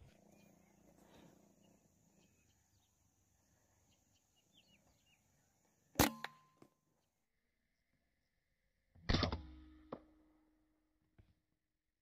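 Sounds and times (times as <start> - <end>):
faint bird chirps: 0.0 - 8.4.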